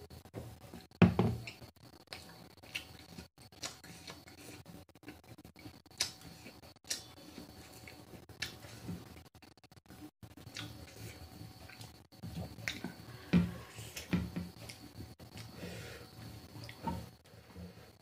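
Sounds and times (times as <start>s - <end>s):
quiet chewing: 1.4s - 9.3s, 9.9s - 15.6s.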